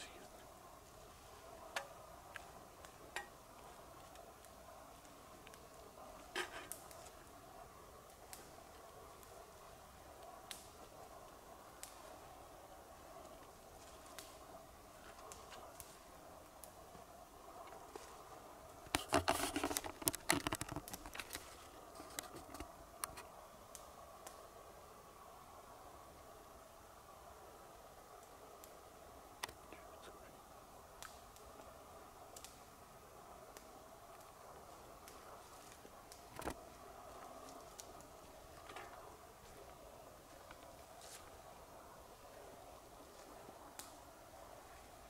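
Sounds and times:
dry crackling and rustling: 0.0s - 24.4s, 29.4s - 45.0s
faint steady hiss: 0.0s - 45.0s
twigs snapping: 18.9s - 24.4s, 31.0s - 31.5s.

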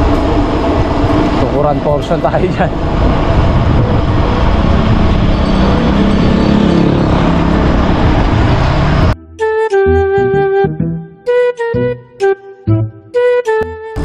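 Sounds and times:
road noise: 0.0s - 9.2s
wind buffeting microphone: 0.0s - 9.2s
flute melody: 9.2s - 14.0s.

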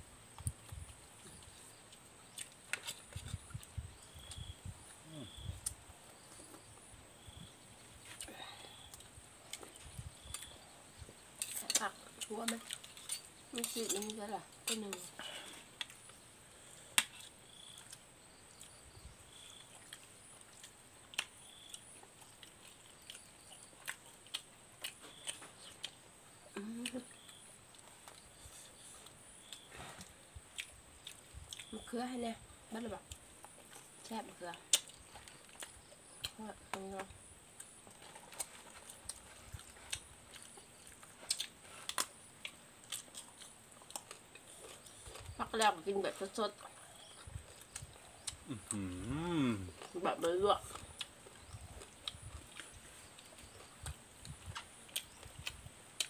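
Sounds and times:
mouths chewing: 8.0s - 31.9s, 32.9s - 56.0s
crunching raw vegetables: 33.1s - 56.0s.

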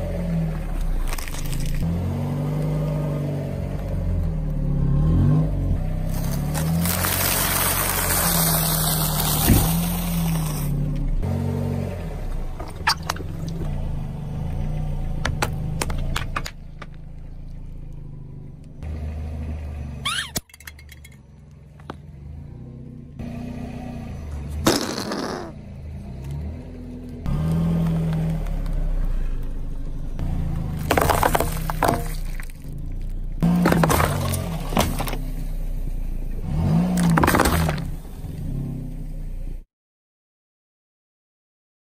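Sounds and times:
car engine running low: 0.0s - 39.6s
tyre crushing biscuits: 6.1s - 10.6s, 30.8s - 35.3s, 36.8s - 38.0s
sharp pop: 24.6s - 25.5s.

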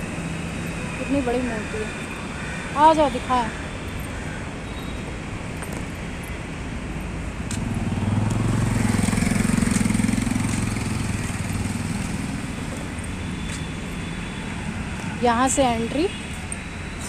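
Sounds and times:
background traffic noise: 0.0s - 17.0s
vehicle engine passing by: 7.5s - 15.5s.

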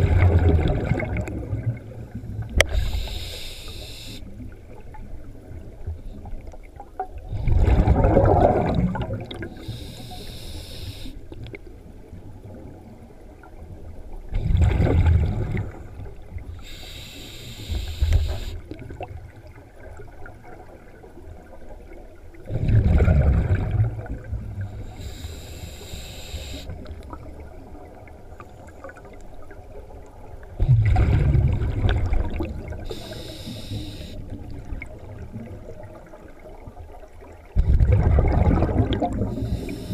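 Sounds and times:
exhaled bubbles gushing underwater: 0.0s - 10.0s, 11.3s - 16.6s, 17.8s - 25.3s, 26.6s - 39.9s
regulator valve hissing: 2.7s - 4.2s, 9.6s - 11.2s, 16.6s - 18.6s, 24.9s - 26.7s, 32.9s - 34.2s, 39.4s - 39.9s.

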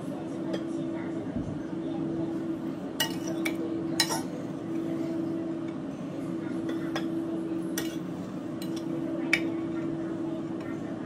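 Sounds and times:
steady hum: 0.0s - 11.0s
metal spoon clinking on plates: 3.0s - 4.4s, 7.8s - 9.6s.

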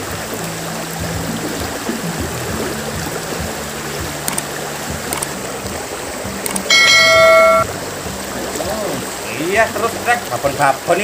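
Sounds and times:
stream water rushing: 0.0s - 11.0s
faint low steady tones: 6.7s - 7.7s.

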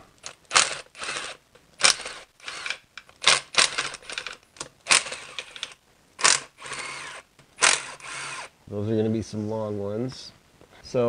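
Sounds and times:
ratchet clicking: 0.2s - 8.5s.

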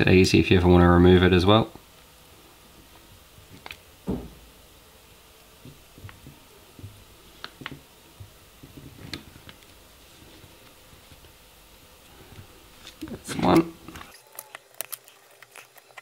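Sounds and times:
soft thump: 4.0s - 4.5s.

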